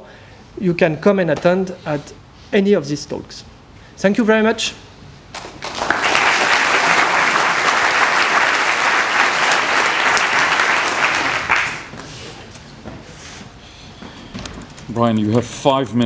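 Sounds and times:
audience applauding: 5.4 - 12.0.

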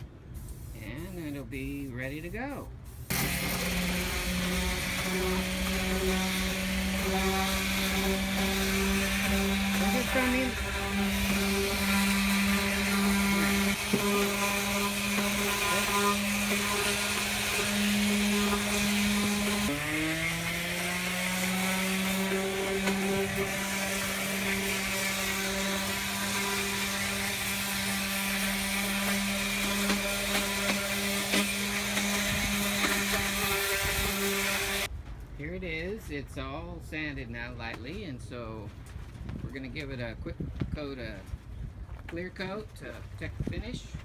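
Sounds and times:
electric orbital sander running: 3.1 - 34.9.

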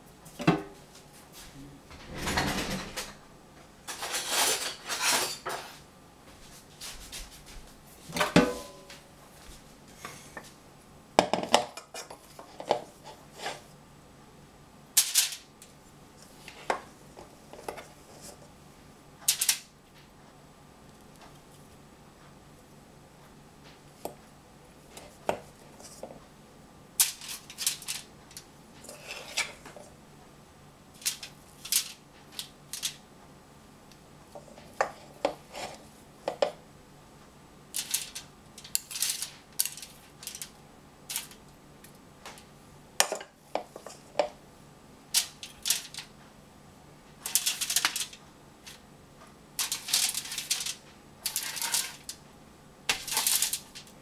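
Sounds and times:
aluminium foil rustling: 15.0 - 15.5, 27.0 - 29.8, 30.9 - 33.0, 37.7 - 41.4, 45.1 - 46.1, 47.2 - 48.8, 49.6 - 52.2, 52.9 - 54.0.

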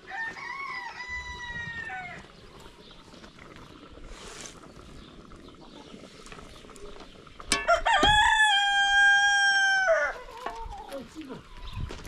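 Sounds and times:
rooster crowing: 0.0 - 2.2, 7.7 - 10.3.

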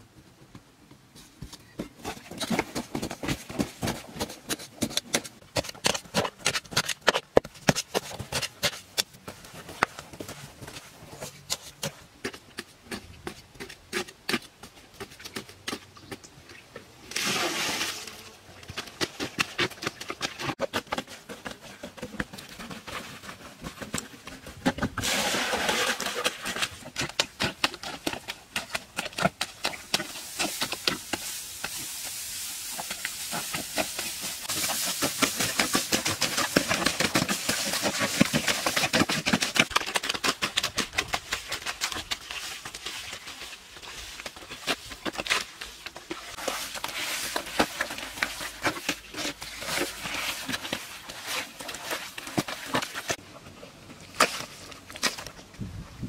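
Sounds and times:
straw rustling: 17.0 - 55.6
bare feet squelching in mud: 22.4 - 53.2.

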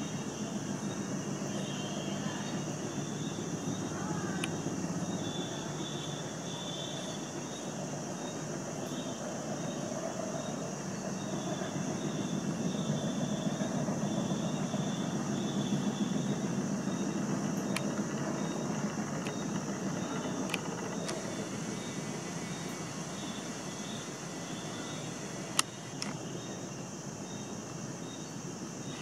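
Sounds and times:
distant vehicles rumbling: 0.0 - 26.6
faint chirp: 0.0 - 29.0
high steady hiss: 0.0 - 29.0
faint clicks: 4.3 - 4.6, 18.8 - 26.2.

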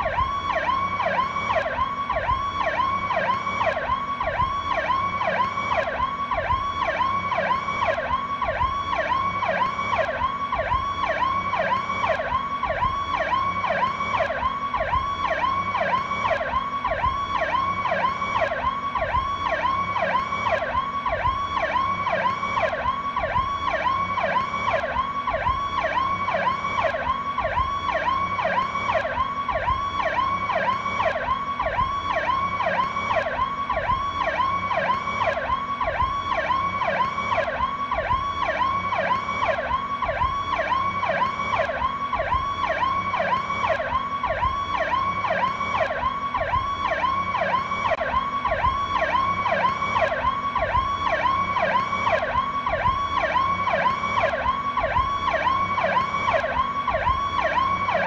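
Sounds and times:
police siren cycling fast: 0.0 - 58.0.

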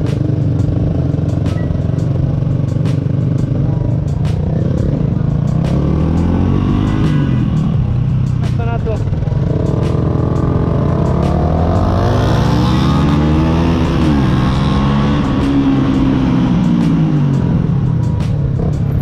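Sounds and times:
motorcycle engine pulling away: 9.1 - 19.0.

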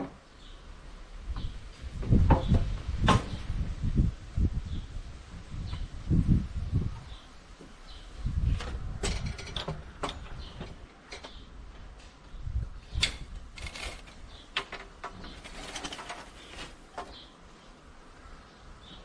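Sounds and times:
small birds chirping faintly: 0.0 - 3.6, 4.3 - 19.0
knocks and scrapes on timber: 15.1 - 17.2.

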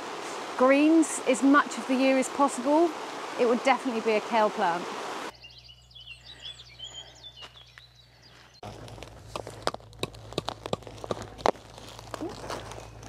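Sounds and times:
birds chirping and singing: 5.3 - 8.7
plastic fabric rustling and crinkling: 8.6 - 13.0.

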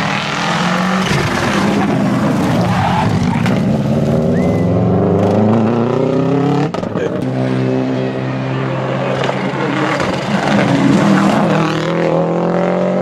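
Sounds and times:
rally car engine passing by: 0.0 - 13.0.

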